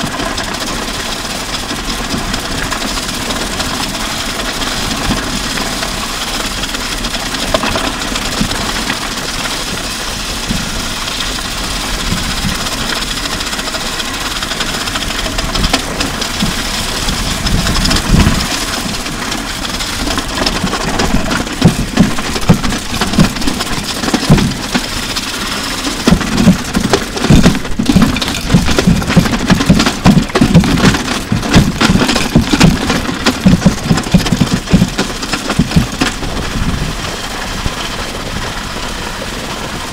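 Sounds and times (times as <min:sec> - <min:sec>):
grinding scrape on wet road: 0:00.0 - 0:39.9
drums knocking and tumbling: 0:15.4 - 0:37.8.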